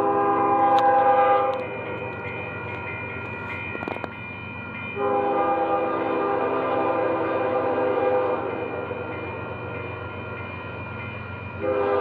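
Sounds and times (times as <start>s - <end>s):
train air horn blasts: 0.0s - 1.6s, 5.0s - 8.5s, 11.6s - 12.0s
low train running rumble: 0.0s - 12.0s.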